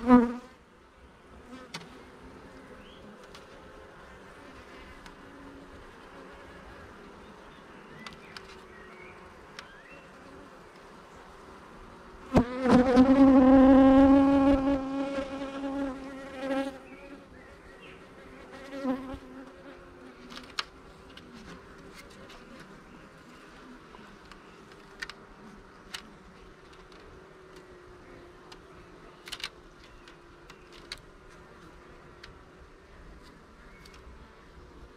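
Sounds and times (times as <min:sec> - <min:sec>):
bee buzzing: 0:00.0 - 0:32.7.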